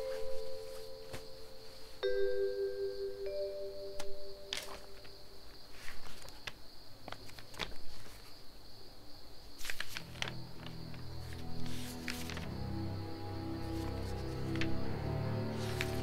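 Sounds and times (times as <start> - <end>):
crickets chirring: 0.0 - 16.0
notebook pages turning: 4.4 - 8.4, 9.6 - 12.6, 13.6 - 14.9, 15.5 - 16.0
low music: 10.0 - 16.0.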